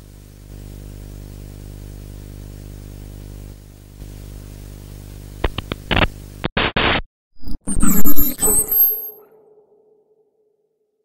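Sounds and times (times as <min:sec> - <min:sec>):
sharp glitch clicks: 0:05.5 - 0:09.9.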